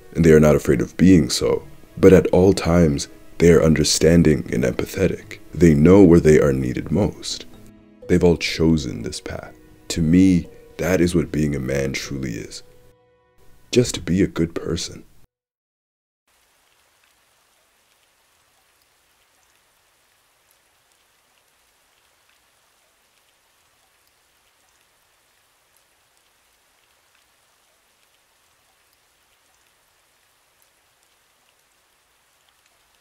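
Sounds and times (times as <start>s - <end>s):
steady rain hiss: 0.0s - 15.3s, 16.3s - 33.0s
raindrop ticks: 16.3s - 33.0s.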